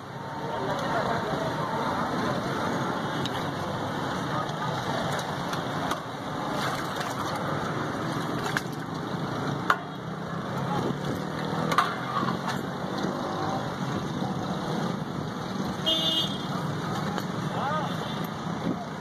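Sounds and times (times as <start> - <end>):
street noise: 0.0 - 19.0
juice sloshing in pot: 6.5 - 9.1.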